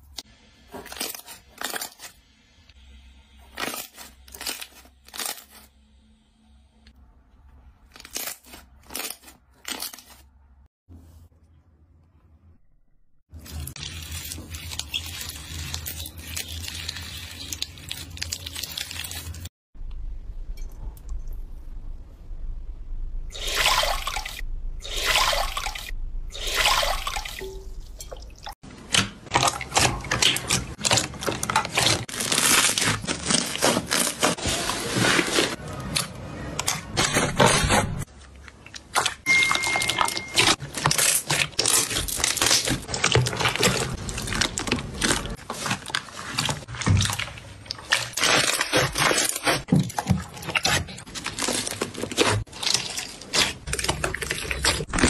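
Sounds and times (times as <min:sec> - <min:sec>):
slime squelching and crackling: 0:13.3 - 0:19.5, 0:28.8 - 0:39.3, 0:40.1 - 0:55.0.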